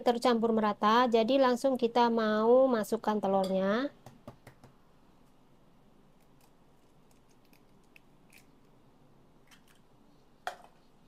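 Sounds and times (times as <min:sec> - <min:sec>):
egg cracking: 0:06.1 - 0:08.8, 0:09.4 - 0:10.0.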